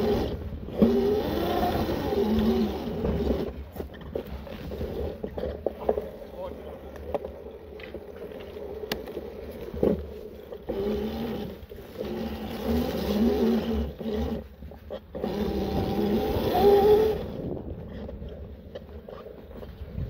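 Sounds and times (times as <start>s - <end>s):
electric bike motor whining: 0.0s - 5.6s, 7.6s - 20.0s.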